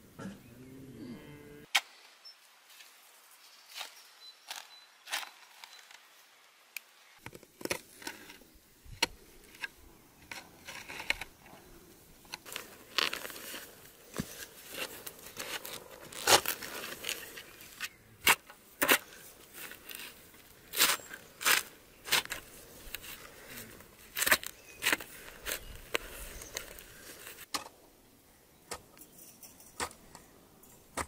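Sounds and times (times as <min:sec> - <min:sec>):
spade digging into soil: 0:12.4 - 0:27.7.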